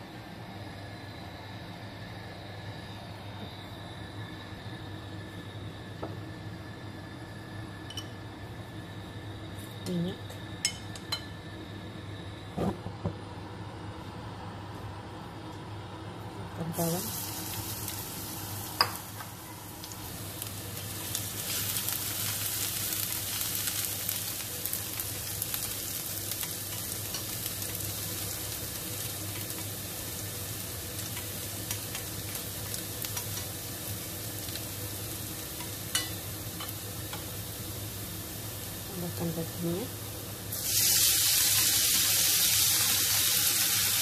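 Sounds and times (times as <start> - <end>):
garlic sizzling in hot oil: 16.7 - 44.0.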